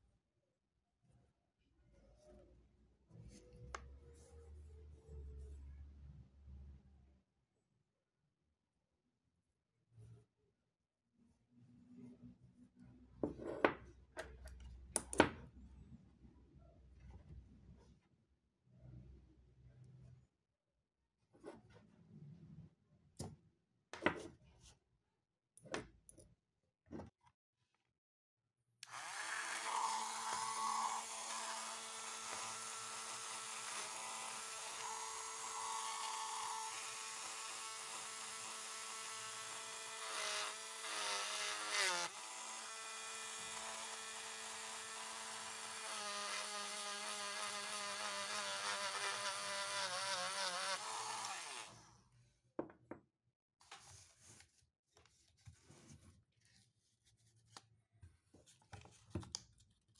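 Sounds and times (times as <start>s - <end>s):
rotary tool motor whine: 28.8s - 51.9s
faint handling sounds: 53.6s - 59.9s.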